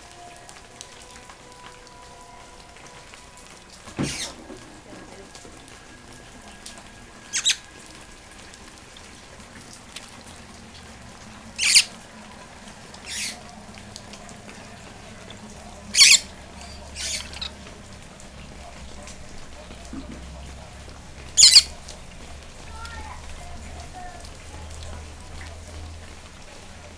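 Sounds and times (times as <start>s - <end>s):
rain hissing: 0.0s - 26.9s
parrot squawking: 4.0s - 4.4s, 7.3s - 7.7s, 11.6s - 12.0s, 13.0s - 13.6s, 15.3s - 17.6s, 21.3s - 21.8s.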